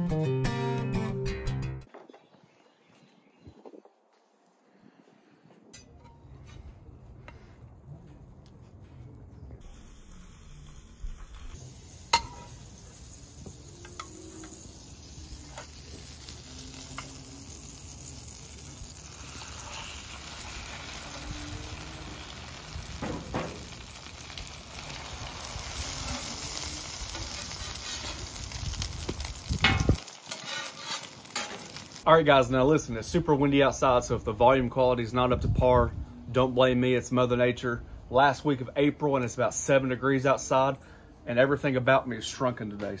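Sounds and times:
sandwiches sizzling on a griddle: 0:09.6 - 0:32.1.

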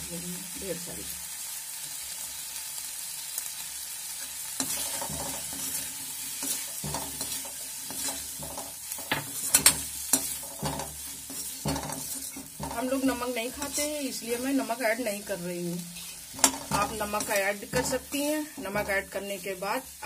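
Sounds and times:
vegetables sizzling in a pan: 0:00.0 - 0:20.0
spoon stirring and scraping: 0:04.2 - 0:14.6, 0:15.9 - 0:19.6.

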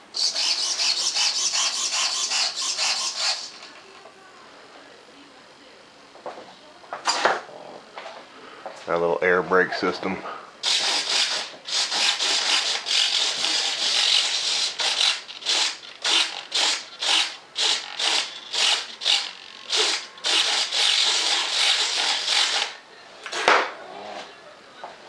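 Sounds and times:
small servo buzzing: 0:00.2 - 0:03.7, 0:10.6 - 0:22.8.

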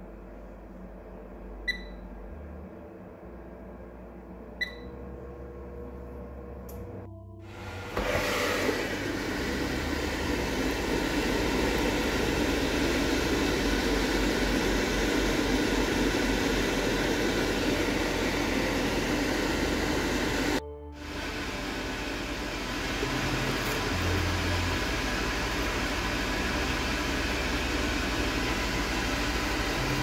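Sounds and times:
air fryer rushing noise: 0:07.5 - 0:30.0.

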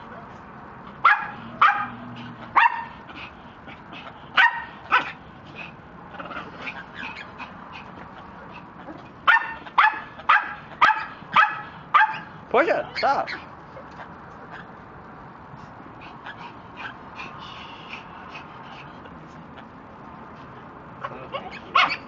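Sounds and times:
dog barking in high yips: 0:01.0 - 0:03.0, 0:04.4 - 0:05.2, 0:09.2 - 0:12.3, 0:21.0 - 0:22.0.

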